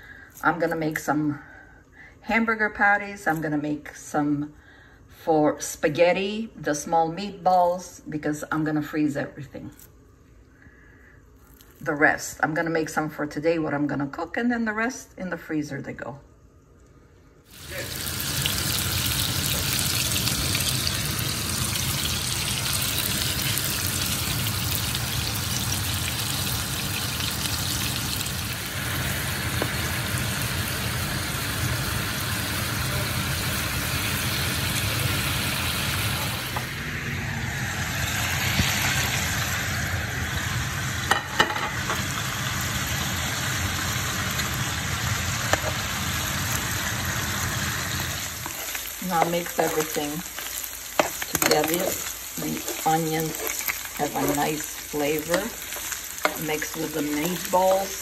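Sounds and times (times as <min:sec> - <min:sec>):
meat patties sizzling in a frying pan: 0:17.5 - 0:36.9, 0:37.5 - 0:58.0.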